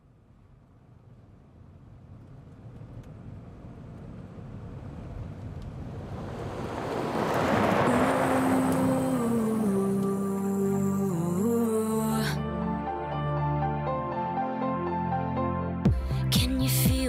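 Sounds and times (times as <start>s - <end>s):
car approaching over dirt: 1.6s - 11.5s
music: 8.0s - 17.0s.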